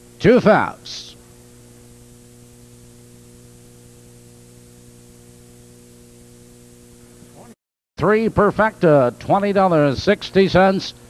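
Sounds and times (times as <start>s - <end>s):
constant hiss: 0.0s - 11.0s
electrical mains hum: 0.0s - 11.0s.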